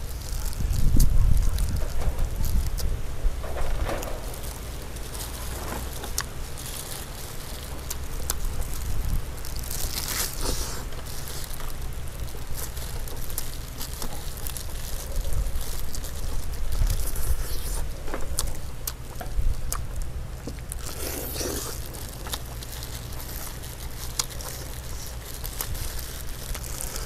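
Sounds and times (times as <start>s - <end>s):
wind rumble on microphone: 0.0s - 20.4s
close chewing: 0.0s - 27.0s
plastic gloves rustling: 0.0s - 27.0s.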